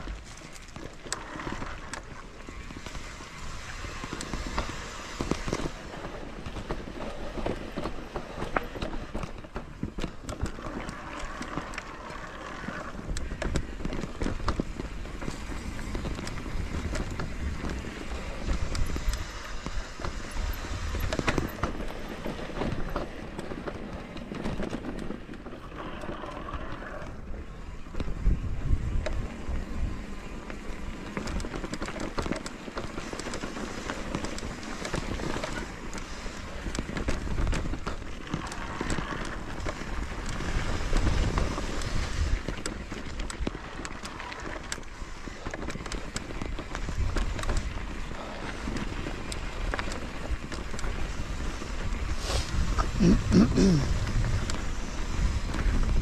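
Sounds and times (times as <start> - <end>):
wind buffeting microphone: 12.9 - 25.4, 26.5 - 32.0, 33.2 - 56.0.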